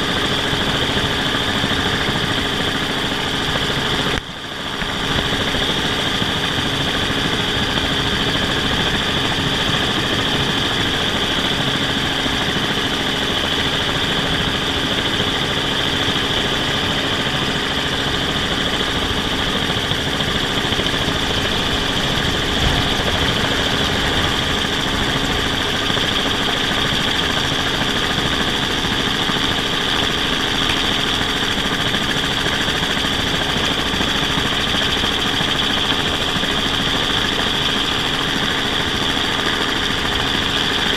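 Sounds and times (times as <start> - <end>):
drone propellers whining: 7.3 - 33.1.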